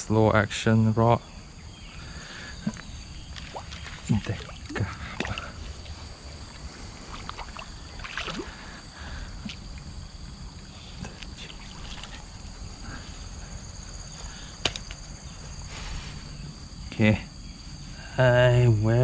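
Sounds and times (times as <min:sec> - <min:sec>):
high insect drone: 0:00.0 - 0:19.0
low wind rumble: 0:01.2 - 0:19.0
water splashing from hooked fish: 0:03.3 - 0:05.6, 0:07.0 - 0:08.6.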